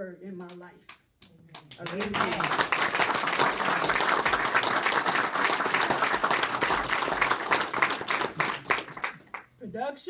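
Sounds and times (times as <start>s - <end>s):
audience applauding: 1.6s - 9.5s.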